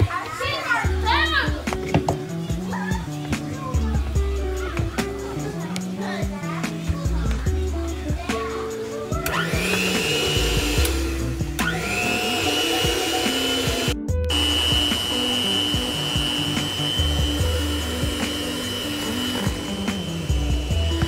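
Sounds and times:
electric hand mixer whirring: 0:09.2 - 0:21.0.

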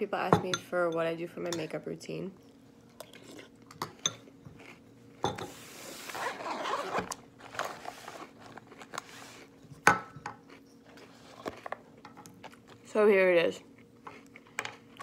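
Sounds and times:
rustling and crinkling: 0:05.5 - 0:09.8, 0:10.5 - 0:12.9.

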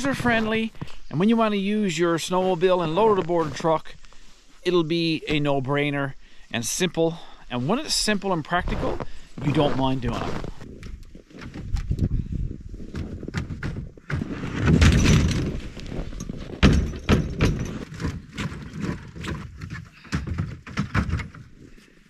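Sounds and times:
metal ramp clanks and scraping: 0:14.1 - 0:21.4.

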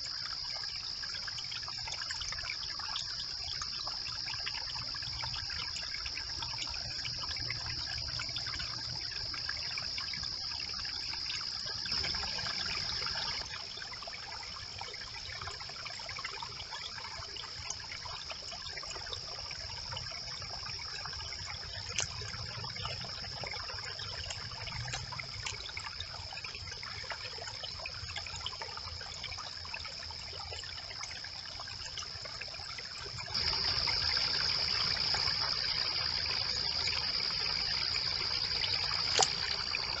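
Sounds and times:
water trickling: 0:00.0 - 0:40.0.

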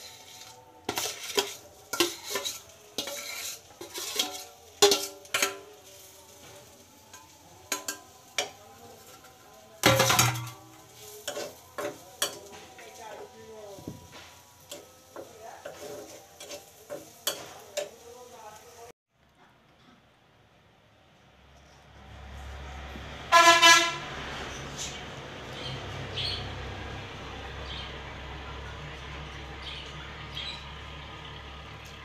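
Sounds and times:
metal spoon scraping steel pan: 0:00.0 - 0:13.3, 0:14.1 - 0:18.0
light sizzle: 0:00.0 - 0:19.0.

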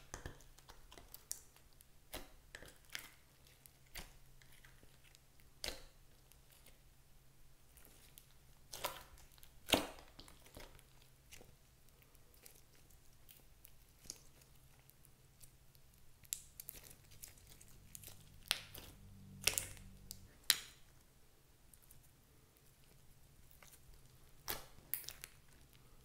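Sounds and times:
slime squelching: 0:00.0 - 0:07.0, 0:07.6 - 0:26.0
slime crackling pops: 0:17.9 - 0:20.8.

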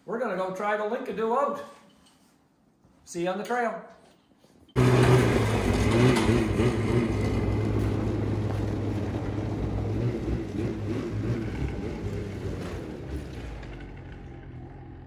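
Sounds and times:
snowmobile engine running: 0:04.8 - 0:15.0.

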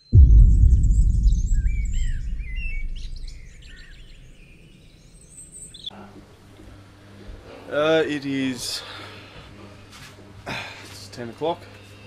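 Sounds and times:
deep boom: 0:00.0 - 0:05.2
birds chirping and whistling: 0:00.9 - 0:05.9.

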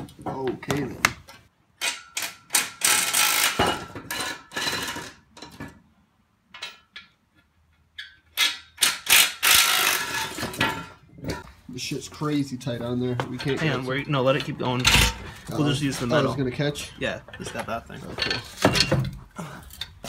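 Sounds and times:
metal parts clanking on concrete: 0:01.8 - 0:05.8, 0:06.5 - 0:07.2, 0:07.8 - 0:11.5, 0:13.2 - 0:15.5, 0:17.3 - 0:20.0.

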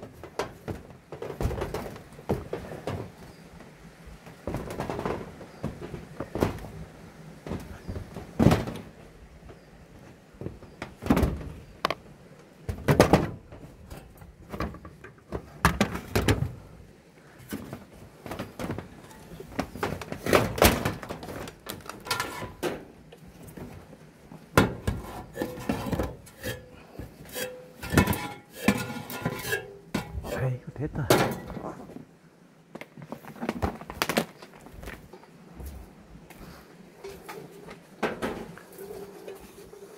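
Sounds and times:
footsteps on metal ladder: 0:24.4 - 0:30.4.

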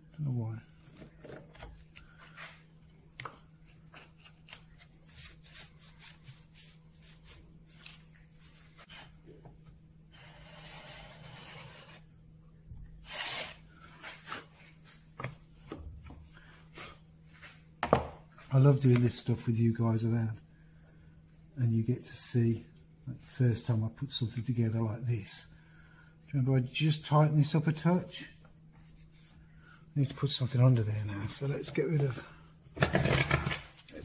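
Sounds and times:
chisel scraping wood: 0:10.1 - 0:12.1.

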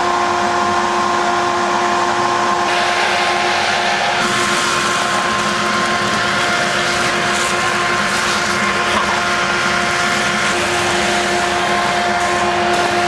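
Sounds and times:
mechanical hum: 0:00.0 - 0:13.0
loud hiss: 0:02.7 - 0:13.0.

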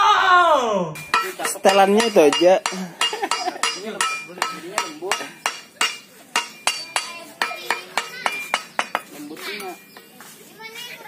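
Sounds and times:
hammer ringing on metal blade: 0:01.0 - 0:09.1.

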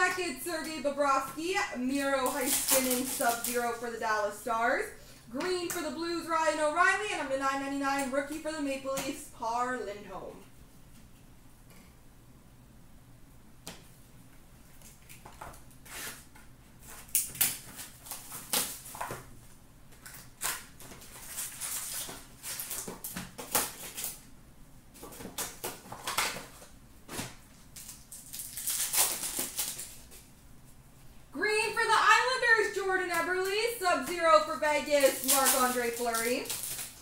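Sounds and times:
wrappers crinkling and tearing: 0:02.0 - 0:03.9, 0:16.8 - 0:19.2, 0:20.0 - 0:24.3, 0:25.0 - 0:30.3, 0:34.2 - 0:37.0.

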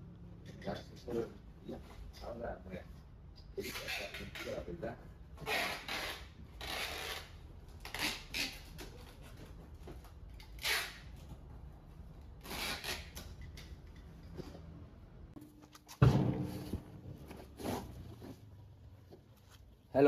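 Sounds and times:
rustling scraping packing noise: 0:16.6 - 0:19.8.

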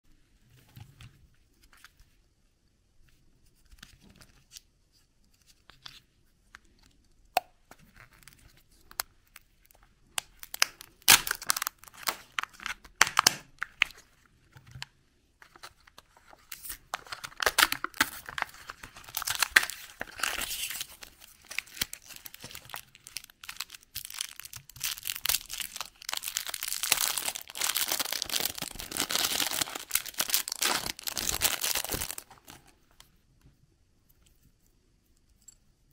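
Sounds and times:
plastic wrapper crinkling: 0:09.6 - 0:14.1, 0:15.4 - 0:32.9
wrapper tearing: 0:10.4 - 0:14.0, 0:16.5 - 0:32.7.

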